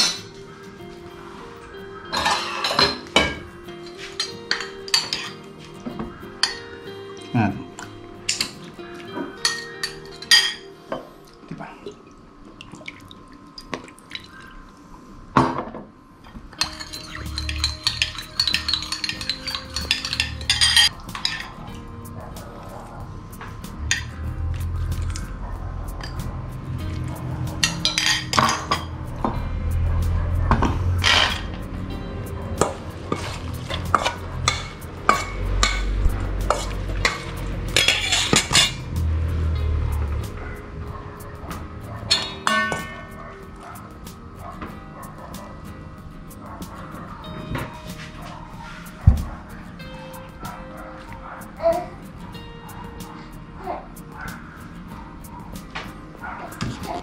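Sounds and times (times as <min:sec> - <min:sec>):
metal spoon clinking ceramic bowl: 0:00.0 - 0:00.4, 0:02.1 - 0:05.5, 0:06.4 - 0:06.8, 0:08.3 - 0:11.0, 0:16.6 - 0:21.6, 0:27.6 - 0:28.9, 0:31.0 - 0:31.6, 0:32.6 - 0:38.9, 0:42.1 - 0:43.2.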